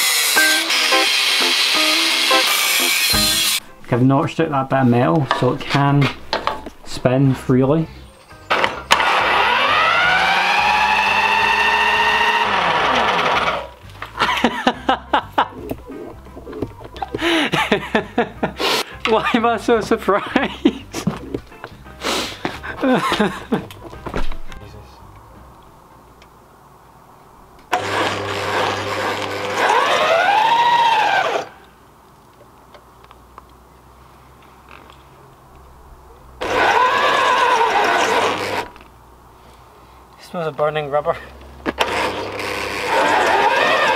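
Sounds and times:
electric drill whining: 0.0s - 3.6s, 8.5s - 13.8s, 27.7s - 31.6s, 36.4s - 38.8s, 41.8s - 43.9s.

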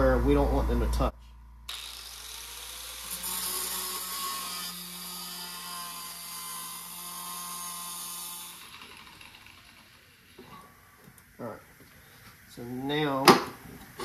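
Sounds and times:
angle grinder cutting metal: 1.7s - 10.7s.

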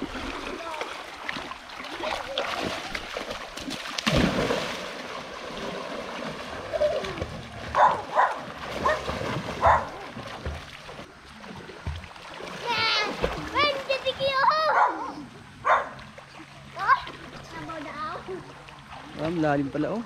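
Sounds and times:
river water splashing: 0.0s - 20.0s.

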